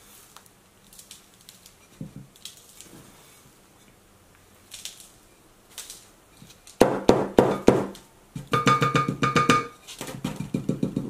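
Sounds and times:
rustling of potting soil: 0.0s - 6.8s
pot knocking on tabletop: 7.1s - 11.0s.

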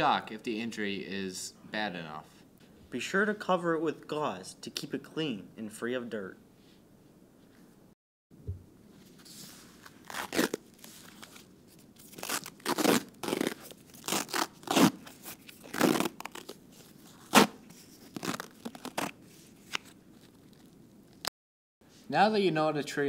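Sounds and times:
gauze bandage tearing: 9.8s - 21.3s.

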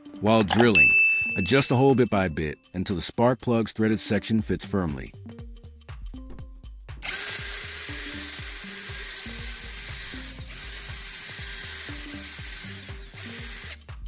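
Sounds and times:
drill boring through wood: 7.0s - 13.9s.

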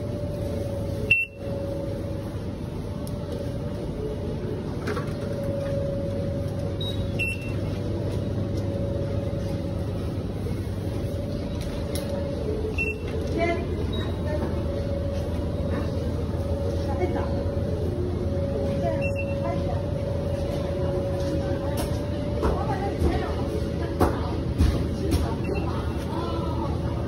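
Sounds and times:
refrigerated cases humming: 0.0s - 27.0s
short high beeps: 1.1s - 1.5s, 12.8s - 13.1s.

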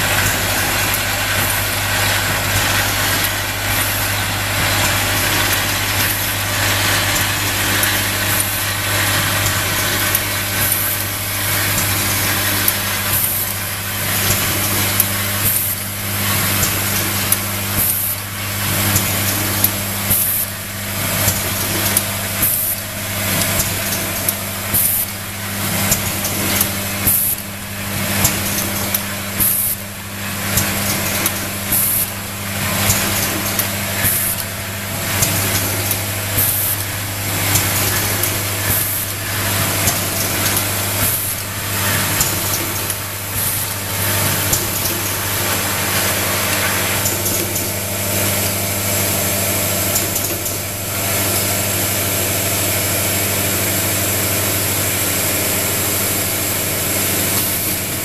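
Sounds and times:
pneumatic hisses and clacks: 0.0s - 52.5s, 54.9s - 58.0s
machine low hum: 0.0s - 58.0s.

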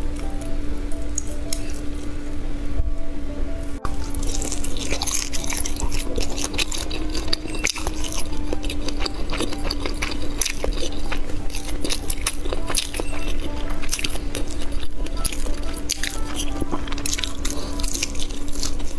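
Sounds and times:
person chewing with wet clicks: 3.9s - 18.9s.

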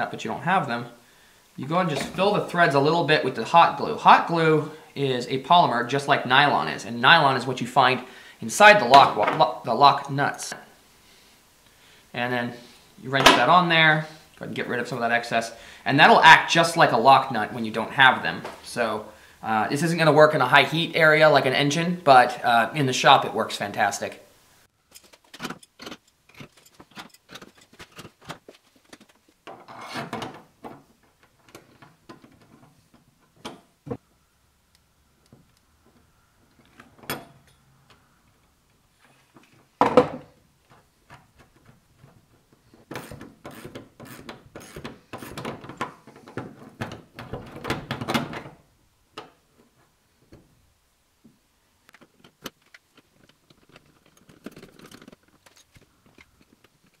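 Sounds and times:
rapid wrench clicking: 43.0s - 45.4s.

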